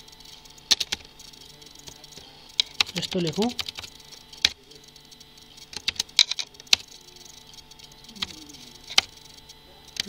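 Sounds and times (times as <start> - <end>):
keyboard key presses: 5.7 - 6.8.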